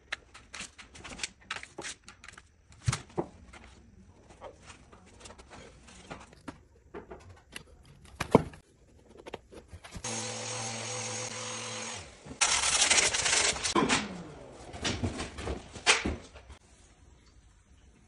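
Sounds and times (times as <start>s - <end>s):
small power tool motor running: 10.0s - 13.8s.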